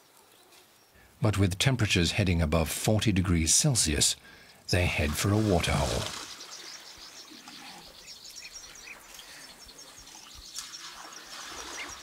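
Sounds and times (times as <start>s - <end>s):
small birds chirping: 4.2s - 12.0s.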